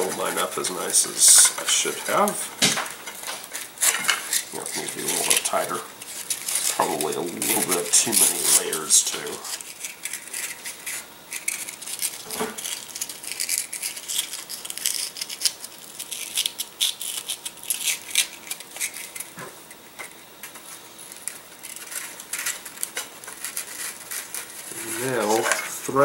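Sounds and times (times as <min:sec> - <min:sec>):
sandpaper crinkling and scratching: 0:03.9 - 0:19.3, 0:21.0 - 0:25.8.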